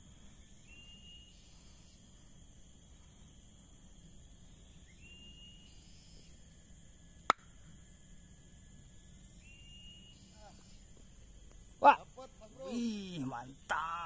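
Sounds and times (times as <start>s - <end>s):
insects droning: 0.0s - 14.0s.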